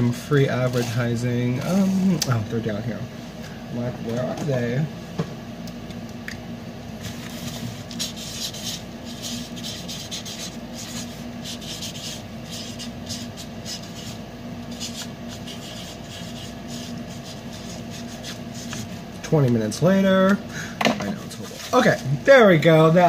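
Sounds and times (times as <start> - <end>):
steady low hum: 0.0 - 23.0
cardboard package rubbing and scraping: 7.0 - 18.9.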